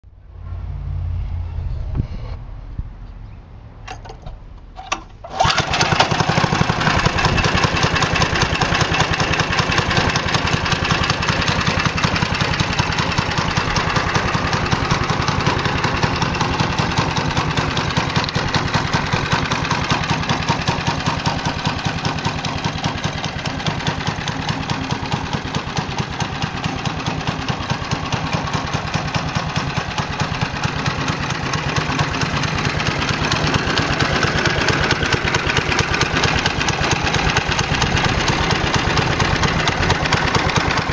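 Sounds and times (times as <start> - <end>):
small engine starting and running: 4.8 - 40.9.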